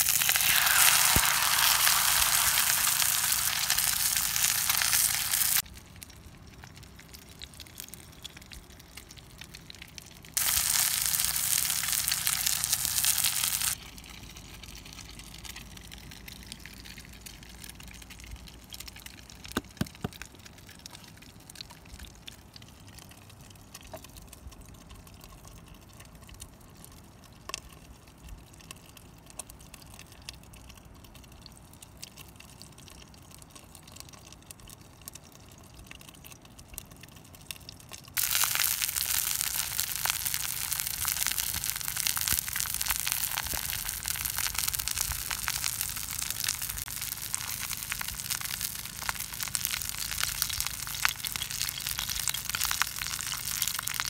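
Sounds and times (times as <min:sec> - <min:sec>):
eggs sizzling in a pot: 0:00.0 - 0:22.5, 0:37.6 - 0:54.0.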